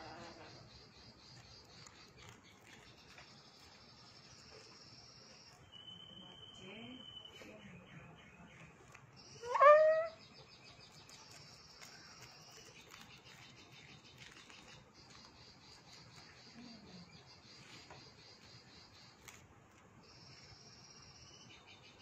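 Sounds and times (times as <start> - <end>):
crickets chirping: 0.0 - 7.4, 11.4 - 19.4
rising animal call: 9.4 - 10.2.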